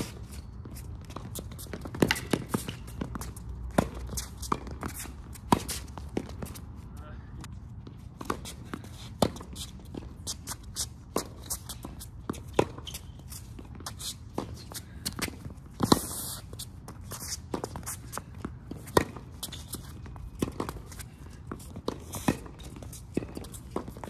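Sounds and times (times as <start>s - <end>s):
racquets hitting tennis ball: 0.0s - 7.0s, 7.8s - 24.0s
quick footsteps on court: 0.0s - 24.0s.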